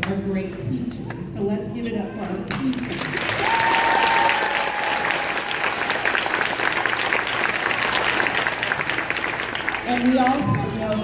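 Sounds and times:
children clapping: 2.7s - 11.0s.

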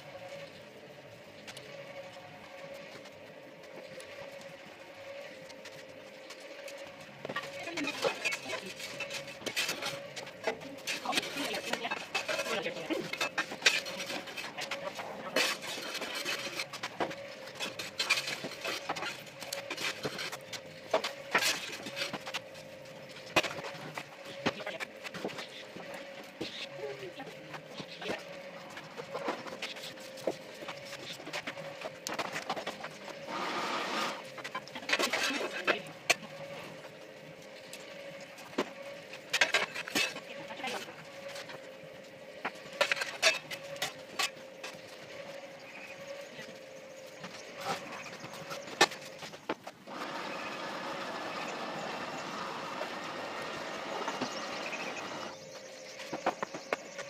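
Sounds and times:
rotisserie motor humming: 0.0s - 57.0s.

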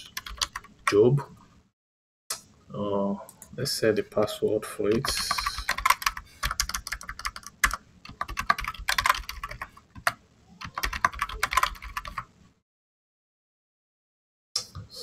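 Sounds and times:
keyboard typing: 0.0s - 1.0s, 4.9s - 12.3s.

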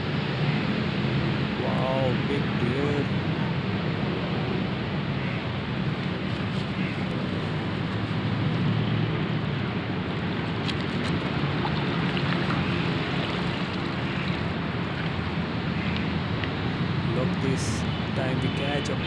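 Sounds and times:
river water flowing: 5.6s - 19.0s.

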